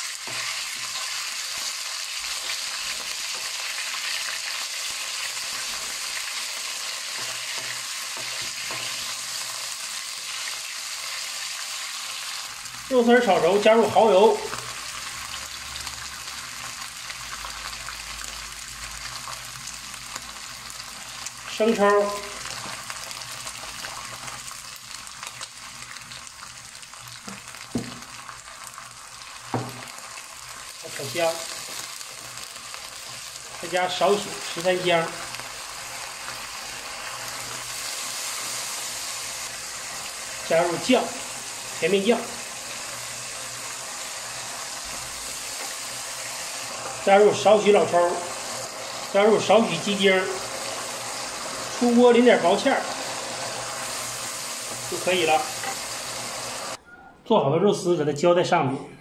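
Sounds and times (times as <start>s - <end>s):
meat sizzling in hot oil: 0.0s - 56.8s
spatula stirring in wok: 5.0s - 10.3s.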